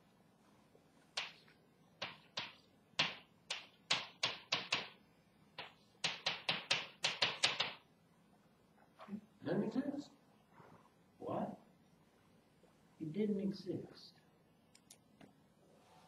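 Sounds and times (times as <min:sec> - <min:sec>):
chalk tapping on a chalkboard: 0:02.0 - 0:05.0, 0:05.6 - 0:07.8.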